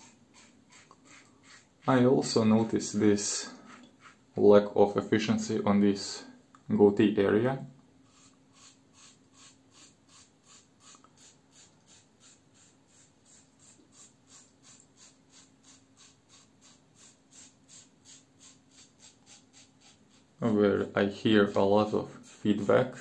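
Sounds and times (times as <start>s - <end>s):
razor scraping stubble: 0.0s - 2.0s.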